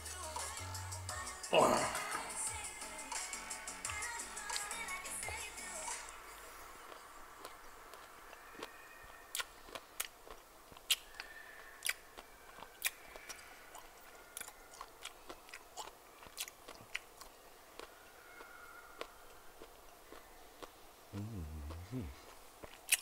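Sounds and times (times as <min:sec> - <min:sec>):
person chewing with wet smacks: 0:06.8 - 0:23.0.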